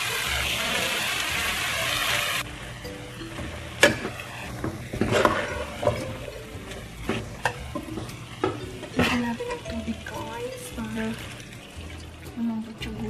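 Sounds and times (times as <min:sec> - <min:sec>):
metal ladle stirring vegetables: 0:03.3 - 0:10.4
metal clinking and scraping on pot: 0:03.3 - 0:12.2.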